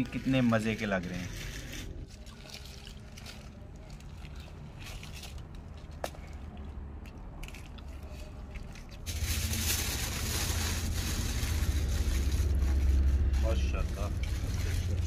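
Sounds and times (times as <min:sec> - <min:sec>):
rushing noise with deep rumble: 0:09.1 - 0:15.0.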